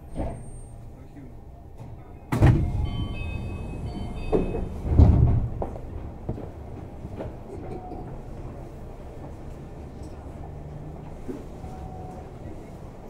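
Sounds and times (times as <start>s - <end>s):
monorail car running noise: 0.0s - 13.0s
heavy thuds: 4.2s - 7.4s.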